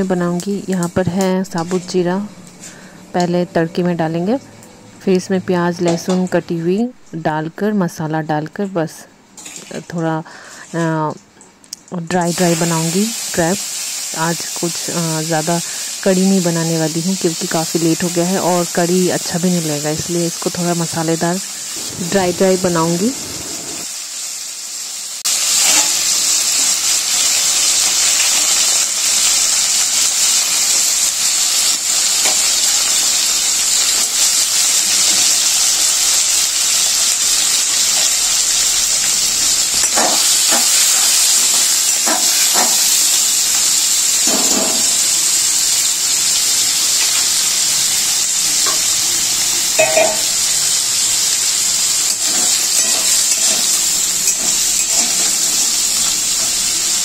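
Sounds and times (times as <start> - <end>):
food sizzling in hot oil: 0.0 - 7.2, 12.0 - 57.0
spatula scraping a wok: 52.2 - 55.6.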